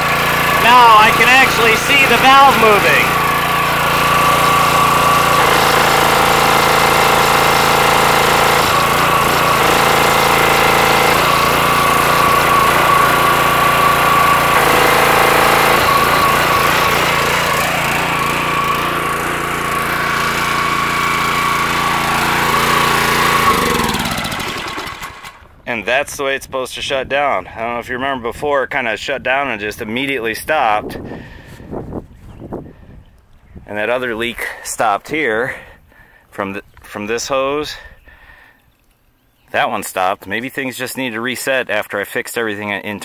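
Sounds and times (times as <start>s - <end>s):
engine winding down: 0.0s - 25.5s
pressure washer engine running: 0.0s - 25.5s.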